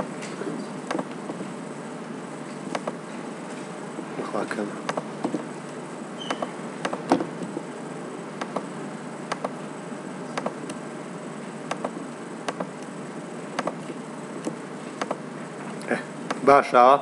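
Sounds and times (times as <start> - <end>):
computer mouse clicking: 2.7 - 3.0, 8.4 - 8.7, 9.3 - 9.6, 10.3 - 10.8, 11.7 - 12.9, 13.6 - 13.8, 14.4 - 15.2.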